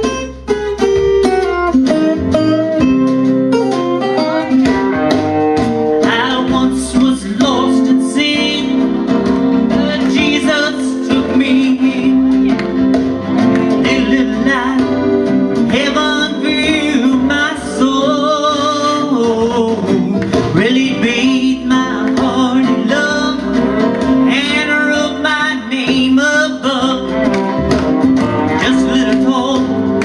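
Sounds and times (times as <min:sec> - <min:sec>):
keyboard accompaniment: 0:00.0 - 0:30.0
man singing into a microphone: 0:06.0 - 0:09.1, 0:09.7 - 0:12.6, 0:13.7 - 0:27.6, 0:28.4 - 0:30.0.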